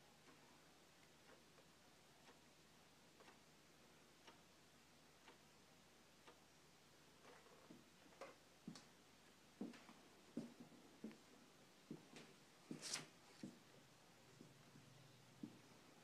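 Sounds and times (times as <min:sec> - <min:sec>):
wall clock ticking: 0:00.0 - 0:12.6
footsteps: 0:09.6 - 0:13.7, 0:14.4 - 0:15.7.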